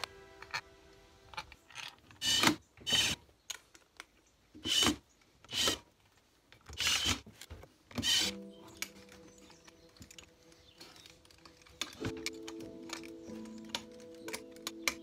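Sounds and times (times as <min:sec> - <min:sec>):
cordless drill spinning screws: 0:01.7 - 0:03.2, 0:04.6 - 0:05.8, 0:06.7 - 0:07.3, 0:08.0 - 0:08.4.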